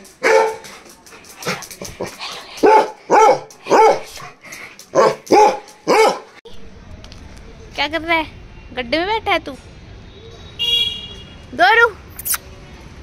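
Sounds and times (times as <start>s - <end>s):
dog barking: 0.2s - 0.7s, 2.6s - 4.2s, 5.0s - 6.4s.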